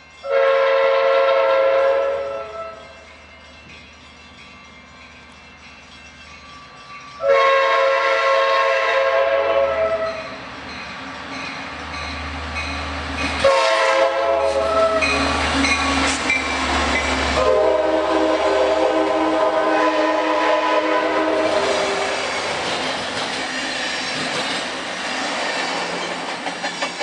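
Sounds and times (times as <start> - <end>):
locomotive air horn: 0.2 - 2.9, 7.2 - 10.4, 13.4 - 15.4, 17.3 - 22.2
rail clatter: 10.1 - 17.6, 21.4 - 27.0.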